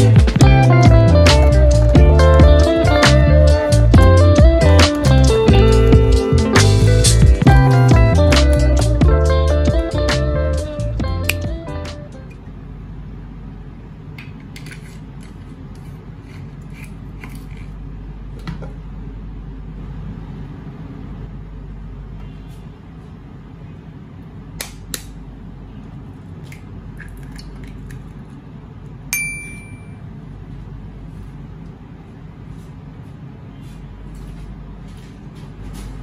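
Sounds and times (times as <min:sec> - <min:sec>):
low hum: 0:29.2 - 0:30.1.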